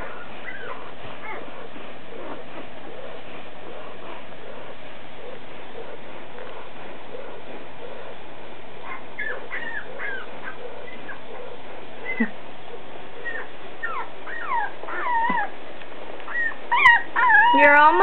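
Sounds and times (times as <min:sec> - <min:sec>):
puppies whimpering: 0:00.0 - 0:02.7, 0:08.8 - 0:15.6, 0:16.3 - 0:18.0.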